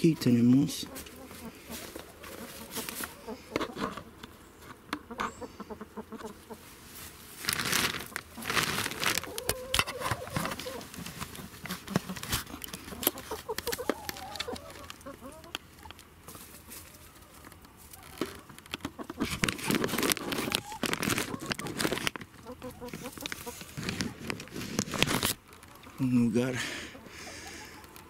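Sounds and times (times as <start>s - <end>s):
hen clucking: 0.0s - 6.8s, 9.1s - 24.5s, 25.6s - 28.0s
plastic sheeting rustling: 6.6s - 12.5s, 19.2s - 22.2s, 22.9s - 25.4s.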